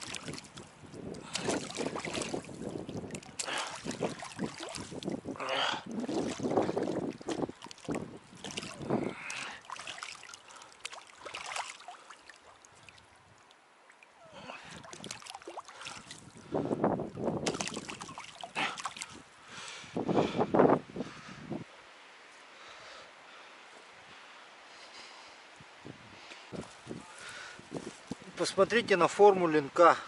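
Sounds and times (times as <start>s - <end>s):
fish splashing in shallow water: 0.0s - 16.5s, 17.4s - 19.3s.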